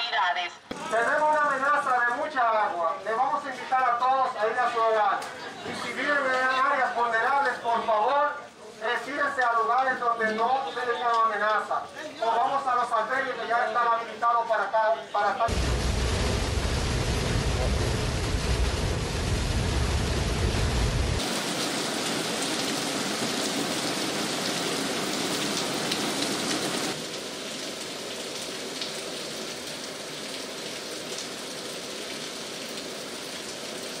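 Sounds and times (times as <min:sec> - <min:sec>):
heavy rain downpour: 0:00.7 - 0:13.9, 0:15.5 - 0:34.0
road noise rumble: 0:15.5 - 0:21.2
rain on car windscreen: 0:15.5 - 0:24.4.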